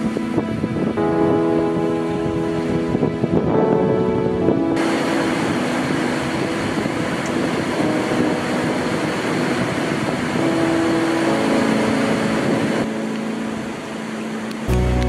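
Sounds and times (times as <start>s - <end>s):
faint background music: 0.0s - 15.0s
waterfall roaring: 4.8s - 15.0s.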